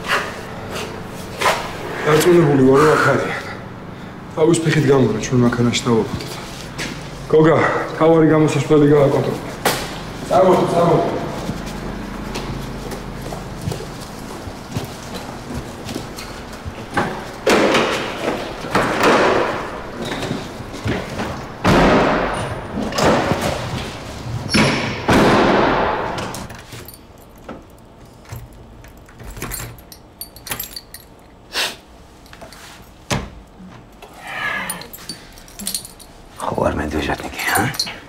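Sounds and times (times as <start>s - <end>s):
heavy slams echoing: 24.6s - 26.4s.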